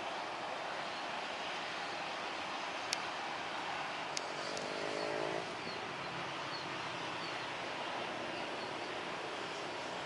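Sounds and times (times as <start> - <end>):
vehicle engine passing: 4.2 - 6.4.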